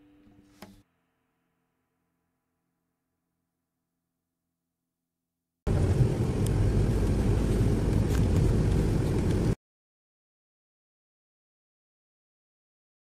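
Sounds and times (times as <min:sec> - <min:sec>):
bus engine and road rumble: 0:05.7 - 0:09.6.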